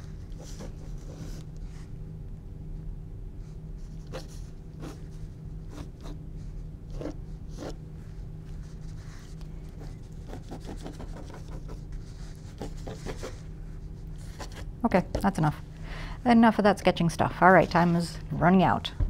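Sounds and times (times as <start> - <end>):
steady low hum: 0.0 - 19.0
pencil scratching on canvas: 4.0 - 6.2, 6.9 - 7.8, 8.7 - 13.5.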